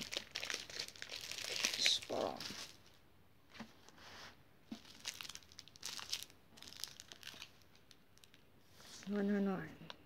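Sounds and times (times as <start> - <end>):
plastic bags crinkling: 0.0 - 3.0, 4.7 - 8.4.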